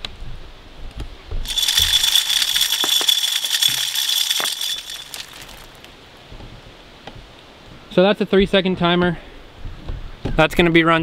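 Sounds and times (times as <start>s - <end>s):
corn kernels rattling: 1.4s - 5.9s.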